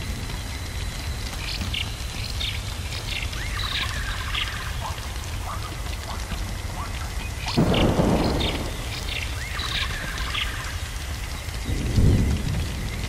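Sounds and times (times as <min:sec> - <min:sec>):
steady crackling hiss: 0:00.0 - 0:13.0
thunder rumbling: 0:00.0 - 0:13.0
high bird-like chirps: 0:07.2 - 0:10.9.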